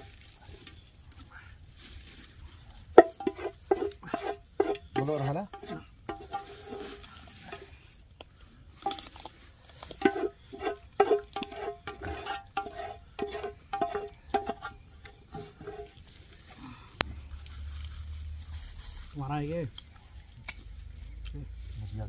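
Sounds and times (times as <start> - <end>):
metal utensils clinking on dishes: 3.0 - 7.8, 10.0 - 16.0.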